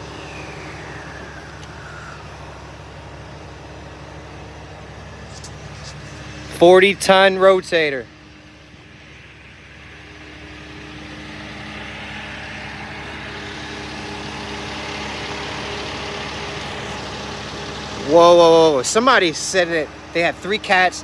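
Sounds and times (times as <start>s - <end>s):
hiss: 0.0s - 2.4s
diesel truck engine running: 0.0s - 21.0s.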